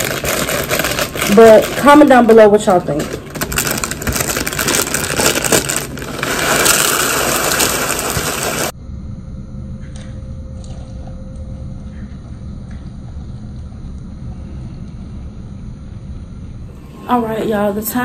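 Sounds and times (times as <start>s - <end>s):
plastic bag rustling: 0.0s - 8.7s
low hum: 0.0s - 18.0s
cereal pouring into bowl: 3.9s - 8.7s.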